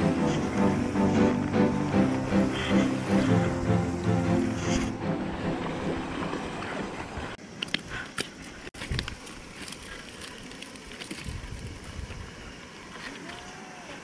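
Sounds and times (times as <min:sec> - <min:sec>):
wind noise on microphone: 0:08.8 - 0:09.3, 0:11.2 - 0:12.6.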